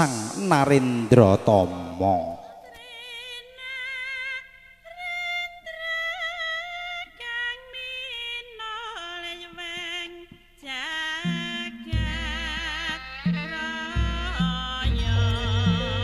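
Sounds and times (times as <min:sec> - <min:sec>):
deep low beats: 0:00.0 - 0:02.4, 0:11.3 - 0:16.0
person singing slow melody: 0:00.0 - 0:07.7, 0:08.8 - 0:16.0
ceremonial music: 0:11.3 - 0:16.0.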